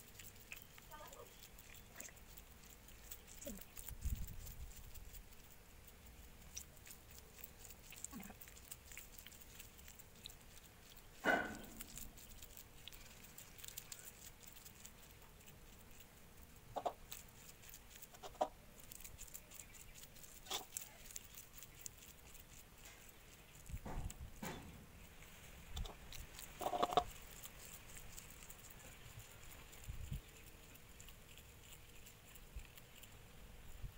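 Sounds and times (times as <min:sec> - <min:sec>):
hands rolling coconut mixture: 0:00.0 - 0:05.5.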